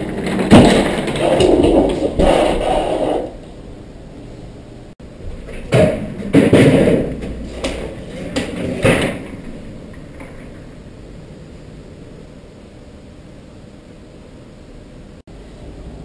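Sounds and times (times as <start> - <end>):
heavy thuds and bangs: 0.0 - 3.0, 5.4 - 9.6.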